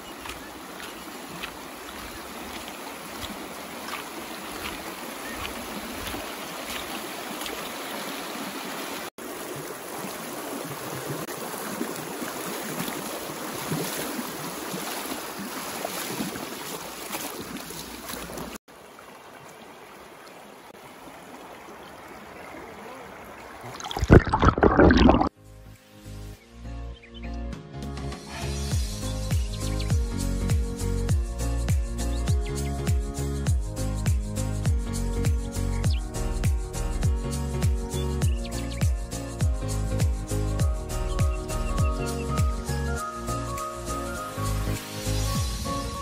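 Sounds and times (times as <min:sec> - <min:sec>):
stream babbling over pebbles: 0:00.0 - 0:25.4
underwater splashing and gurgling: 0:23.6 - 0:25.4.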